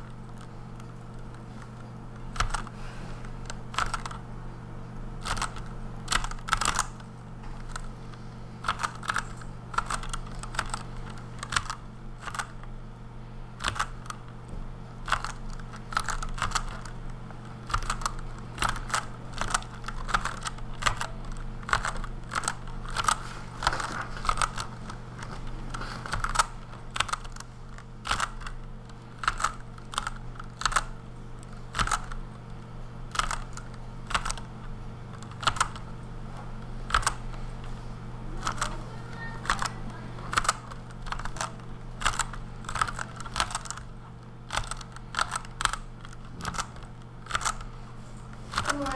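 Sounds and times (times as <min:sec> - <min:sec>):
steady low hum: 0:00.0 - 0:48.9
mechanical keyboard key clacks: 0:03.4 - 0:04.2, 0:05.2 - 0:07.0, 0:08.6 - 0:10.8, 0:11.4 - 0:12.5, 0:13.6 - 0:14.2, 0:15.0 - 0:16.9, 0:17.6 - 0:24.7, 0:26.1 - 0:27.4, 0:28.0 - 0:28.6, 0:29.2 - 0:30.9, 0:31.7 - 0:32.2, 0:33.1 - 0:34.5, 0:35.2 - 0:35.8, 0:36.9 - 0:37.2, 0:38.4 - 0:38.7, 0:40.3 - 0:43.9, 0:44.5 - 0:47.6.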